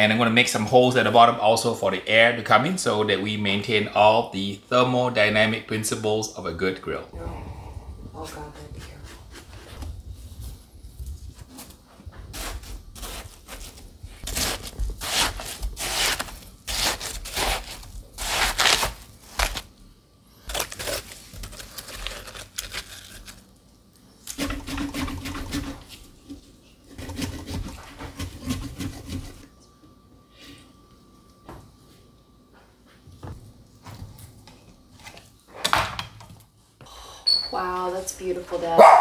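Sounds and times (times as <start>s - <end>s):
metal scoop scraping watermelon: 24.3s - 26.0s, 26.9s - 29.4s.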